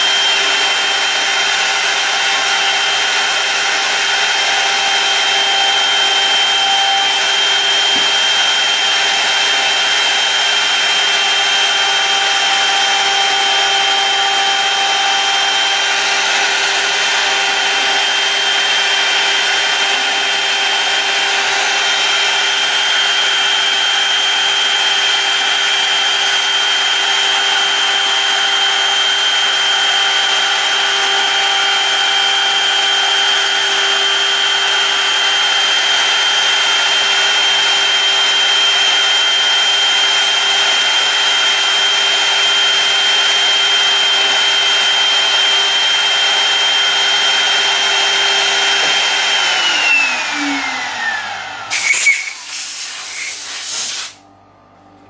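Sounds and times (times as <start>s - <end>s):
motor high whine: 0.0s - 55.0s
cutter hiss: 51.7s - 54.2s.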